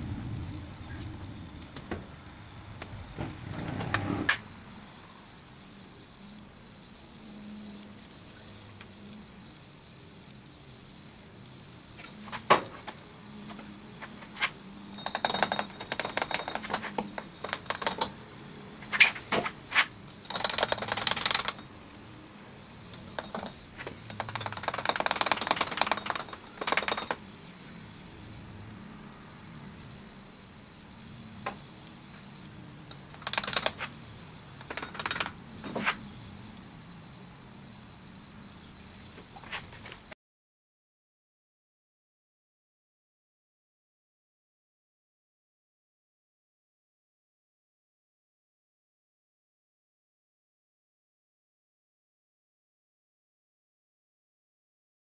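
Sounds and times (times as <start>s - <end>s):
gritty scraping of sand: 0.0s - 4.5s, 18.8s - 20.0s.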